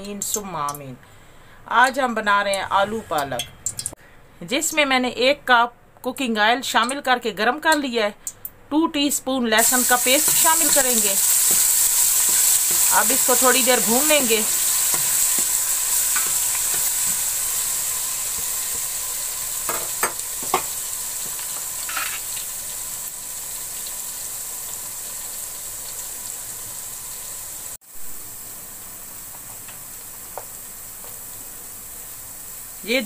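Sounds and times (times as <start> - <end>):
garlic sizzling in oil: 9.6 - 33.0.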